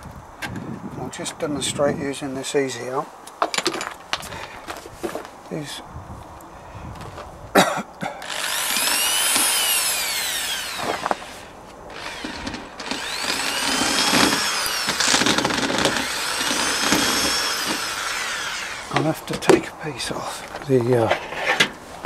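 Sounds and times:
drill motor running: 8.2s - 19.2s.

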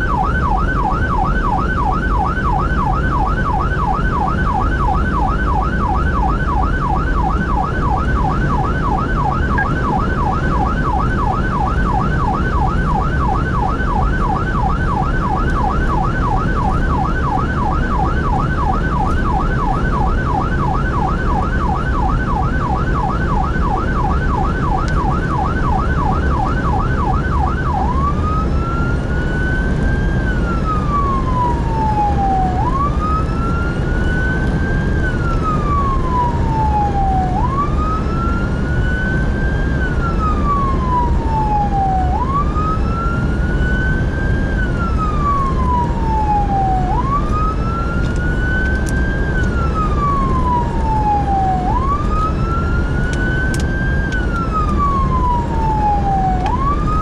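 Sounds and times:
electronic siren yelp and wail: 0.0s - 57.0s
engine and road rumble: 0.0s - 57.0s.

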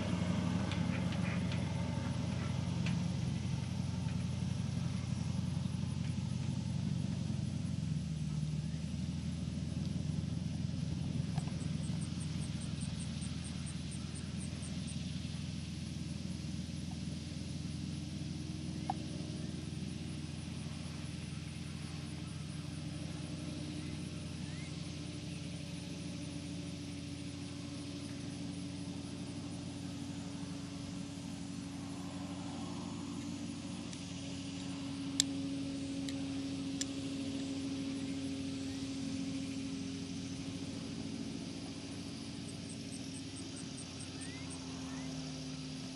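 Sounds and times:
tractor engine running: 0.0s - 45.9s.

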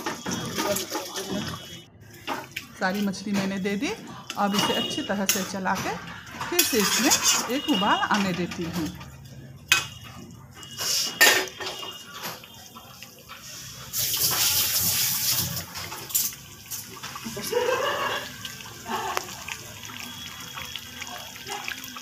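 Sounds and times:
gravy bubbling at the boil: 16.6s - 22.0s.

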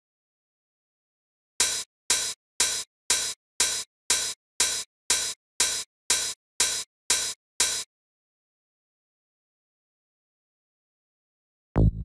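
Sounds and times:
open hi-hat hits: 1.6s - 7.8s.

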